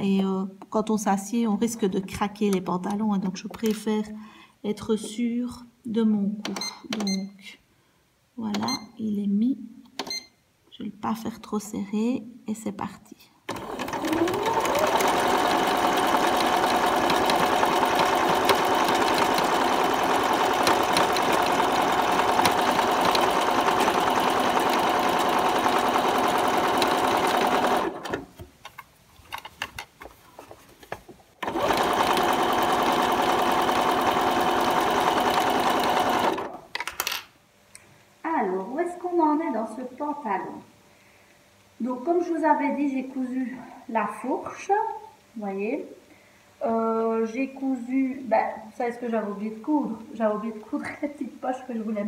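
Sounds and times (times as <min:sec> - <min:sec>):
electric sewing machine stitching: 0:13.5 - 0:28.3, 0:31.4 - 0:36.6.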